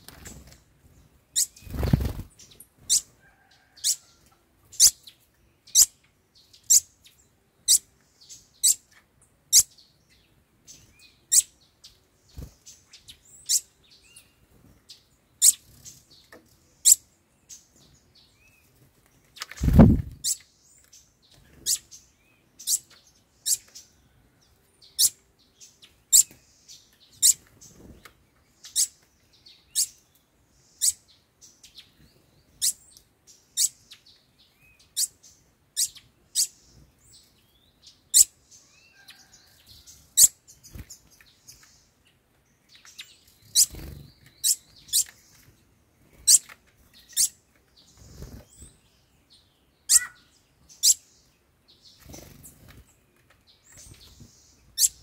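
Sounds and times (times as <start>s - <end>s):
songbird chip calls: 49.8s - 51.1s.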